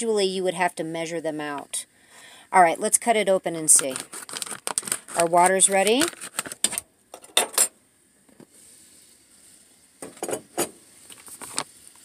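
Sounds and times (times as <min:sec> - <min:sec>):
water boiling in a saucepan: 0:07.8 - 0:12.0.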